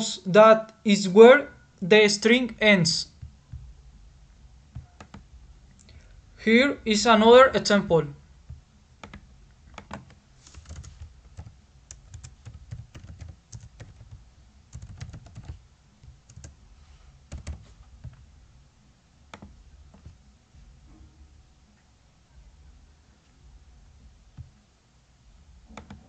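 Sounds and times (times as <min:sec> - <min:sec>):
computer keyboard typing: 0:04.8 - 0:05.3, 0:09.0 - 0:16.6, 0:17.3 - 0:18.2, 0:19.3 - 0:20.2, 0:25.7 - 0:26.0.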